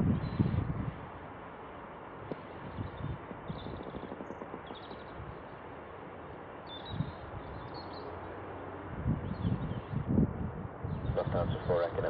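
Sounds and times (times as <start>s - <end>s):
wind buffeting microphone: 0.0s - 1.3s, 2.2s - 7.9s, 8.8s - 12.0s
jet rumble: 0.0s - 12.0s
bird chirps: 2.6s - 5.2s, 6.6s - 8.2s.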